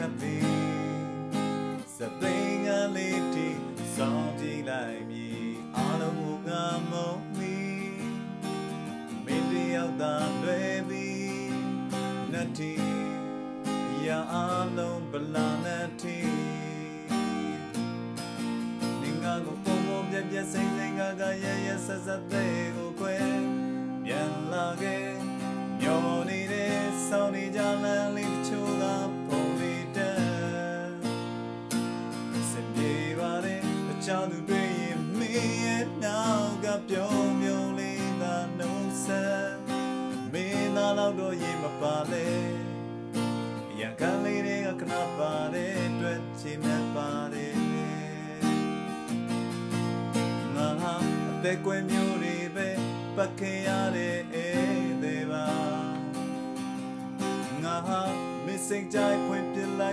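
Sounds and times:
man singing: 0:00.0 - 0:17.9, 0:18.8 - 0:31.4, 0:32.2 - 0:49.1, 0:50.2 - 0:59.9
strummed acoustic guitar: 0:00.0 - 0:59.9.

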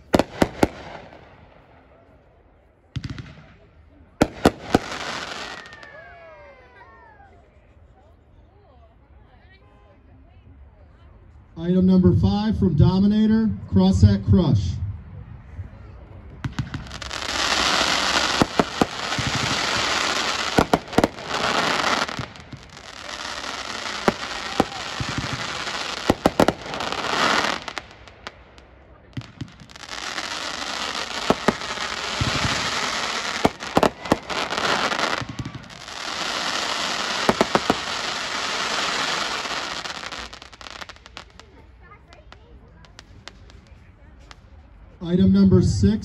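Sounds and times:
fireworks bangs: 0:00.0 - 0:02.0, 0:02.9 - 0:06.4, 0:16.2 - 0:44.4
fireworks hissing crackle: 0:04.2 - 0:06.4, 0:16.4 - 0:44.6.

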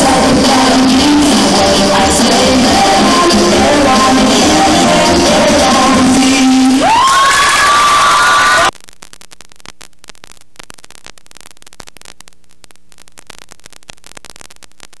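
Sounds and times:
music: 0:00.0 - 0:07.0
crowd noise: 0:00.0 - 0:08.7
static crackle: 0:00.0 - 0:15.0
faint mains hum: 0:08.8 - 0:15.0.

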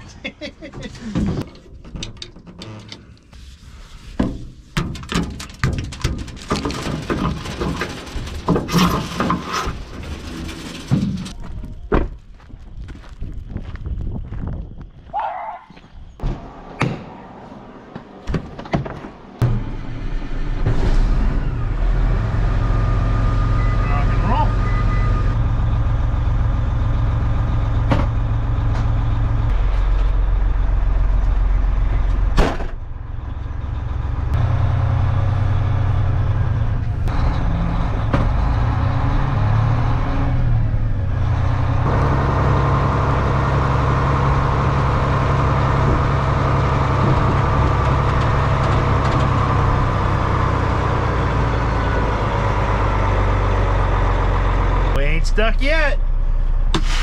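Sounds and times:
diesel engine humming: 0:16.3 - 0:56.8.

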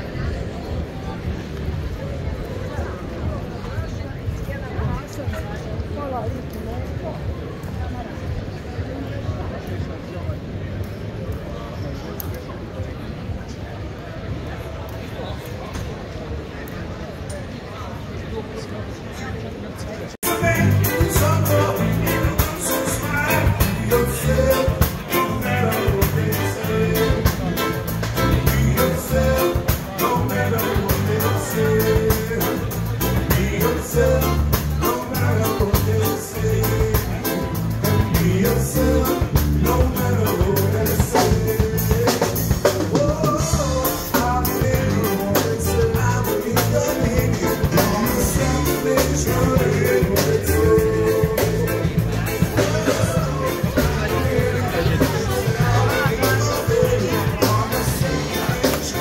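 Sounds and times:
bass: 0:00.0 - 0:14.4, 0:20.2 - 0:59.0
electric guitar: 0:20.2 - 0:59.0
person singing: 0:20.2 - 0:59.0
steady drum beat: 0:20.2 - 0:59.0.

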